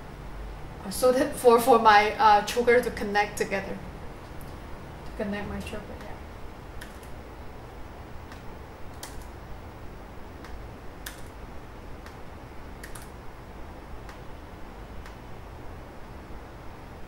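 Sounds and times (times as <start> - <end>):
laptop keys clicking: 6.8 - 7.2, 8.3 - 9.3, 10.4 - 11.4, 12.8 - 13.2.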